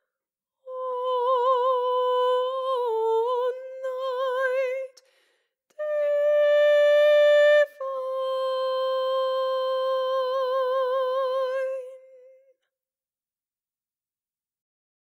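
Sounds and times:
woman singing unaccompanied: 0.6s - 5.0s, 5.7s - 12.6s
quick breath: 5.0s - 5.6s.

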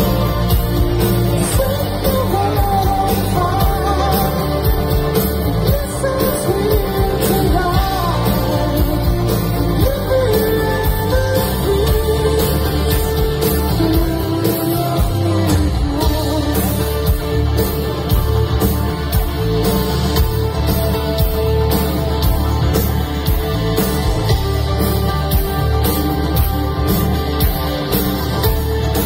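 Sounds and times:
male singer: 0.0s - 17.4s
bass: 0.0s - 29.0s
electric guitars: 0.0s - 29.0s
keyboards: 0.0s - 29.0s
steady drum beat: 0.0s - 29.0s.

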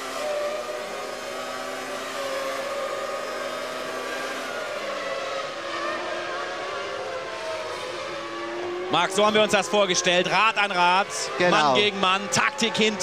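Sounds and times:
racing car engine at high revs: 0.0s - 13.0s.

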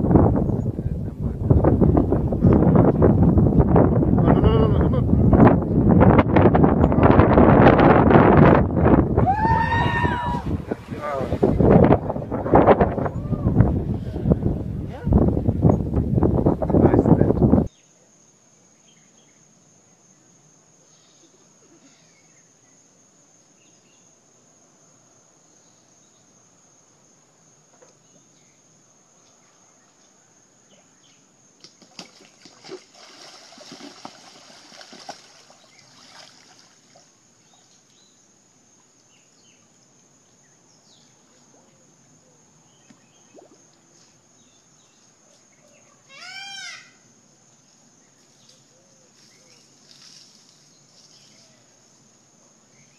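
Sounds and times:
splashing in water: 31.6s - 37.1s.

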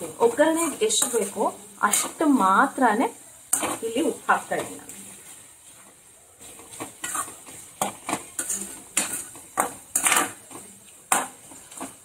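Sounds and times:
spatula scraping a metal pan: 0.3s - 2.5s, 3.5s - 5.0s, 6.4s - 12.0s.

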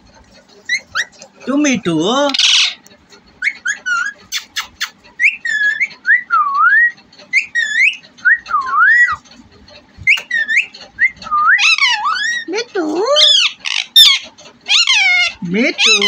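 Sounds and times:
parakeet whistling: 3.4s - 9.2s, 10.0s - 12.5s.

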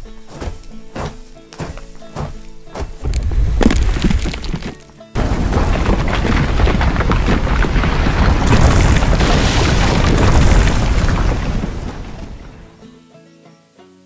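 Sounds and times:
clattering stones: 0.3s - 12.8s
cartoon rockslide rumble: 2.2s - 12.8s.

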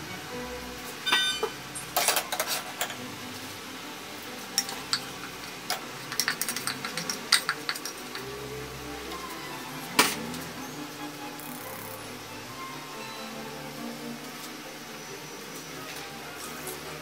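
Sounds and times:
lentils clattering into pan: 1.1s - 3.0s, 5.7s - 8.2s.

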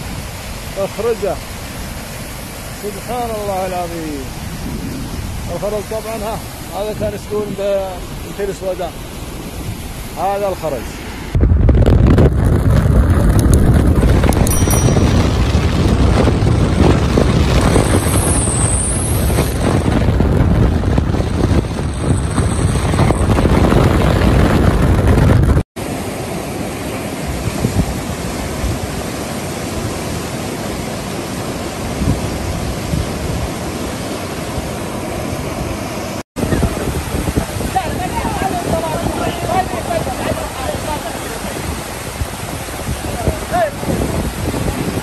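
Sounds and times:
floodwater rushing: 0.0s - 11.4s, 25.8s - 45.0s
wind buffeting microphone: 0.0s - 45.0s.

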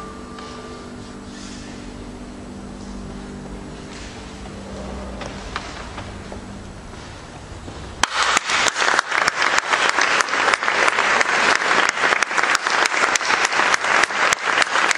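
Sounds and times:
audience applauding: 8.0s - 14.9s.

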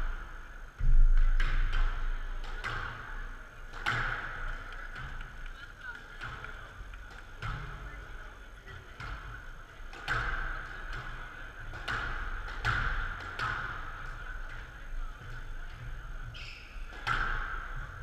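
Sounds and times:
steady background hum: 0.0s - 18.0s
squash ball struck by rackets: 0.8s - 5.5s, 9.9s - 14.2s, 16.4s - 18.0s
ball smacking off court walls: 0.8s - 8.1s.

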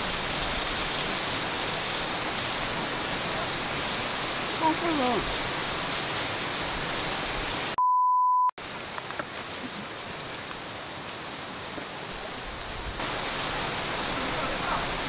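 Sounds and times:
running water: 0.0s - 7.8s, 8.6s - 15.0s
censor bleep: 7.8s - 8.6s.

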